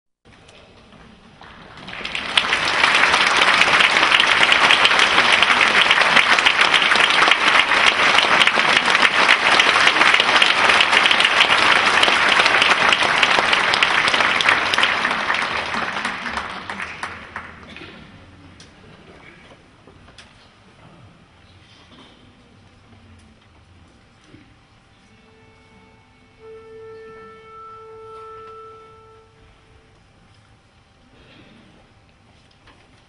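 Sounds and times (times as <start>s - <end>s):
audience applauding: 1.4s - 17.8s.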